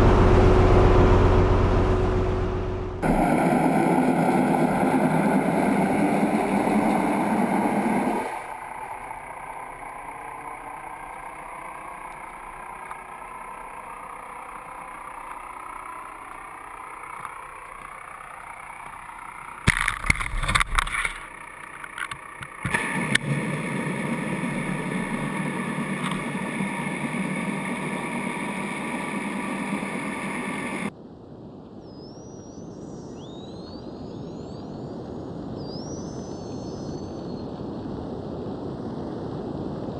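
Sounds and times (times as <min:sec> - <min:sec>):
boat engine running: 0:00.0 - 0:30.9
water noise: 0:00.0 - 0:30.9
wind: 0:00.0 - 0:39.9.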